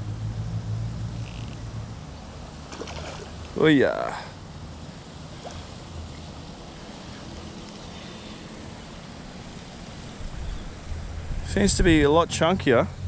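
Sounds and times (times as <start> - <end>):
wind on microphone: 10.1 - 12.2.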